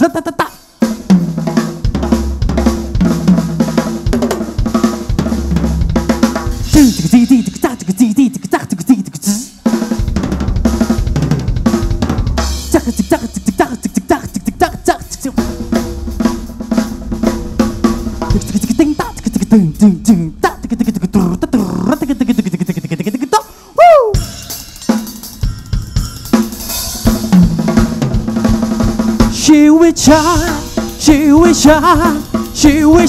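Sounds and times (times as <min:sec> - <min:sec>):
drum kit playing: 0:00.0 - 0:33.0
musical accompaniment: 0:09.1 - 0:33.0.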